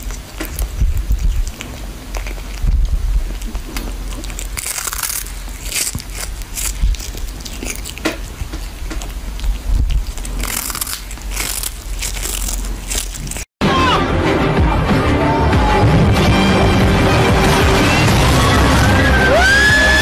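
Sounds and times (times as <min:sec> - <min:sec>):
cat chewing fish: 0:00.0 - 0:13.5.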